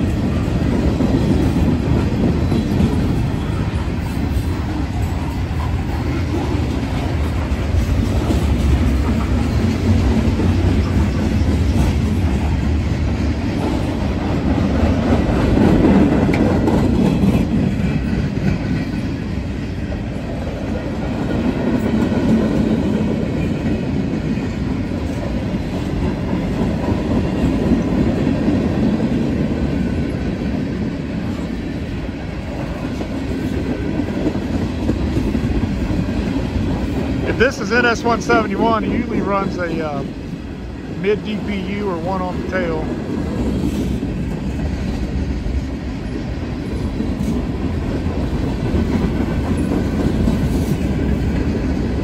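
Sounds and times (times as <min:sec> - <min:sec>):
freight train rolling past: 0:00.0 - 0:52.0.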